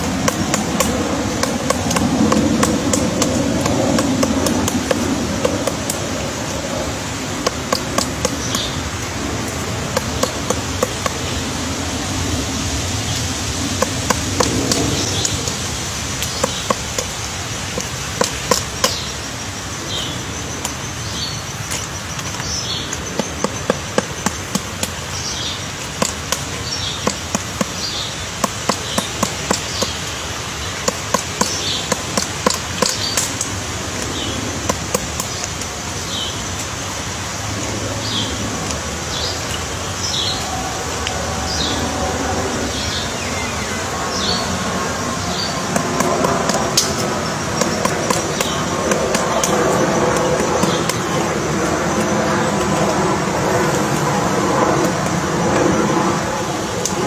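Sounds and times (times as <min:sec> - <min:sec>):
woodpecker knocking on wood: 0:00.0 - 0:12.0, 0:13.1 - 0:19.3, 0:20.4 - 0:35.7, 0:45.2 - 0:53.0.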